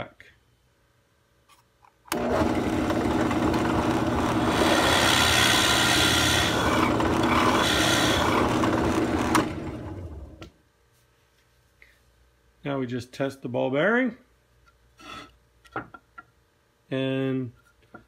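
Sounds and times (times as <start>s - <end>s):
drill bit boring into wood: 2.1s - 10.0s
drill press motor hum: 2.1s - 10.5s.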